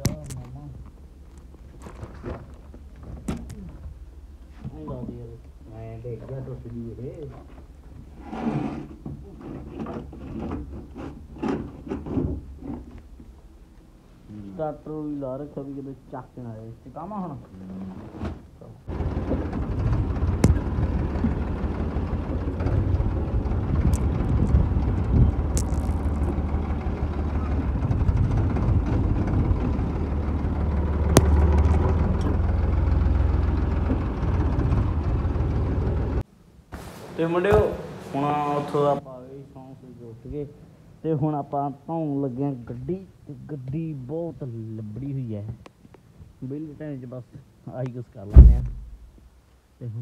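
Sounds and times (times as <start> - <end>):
low steady hum: 8.8 - 50.0
tractor diesel engine: 18.8 - 36.2.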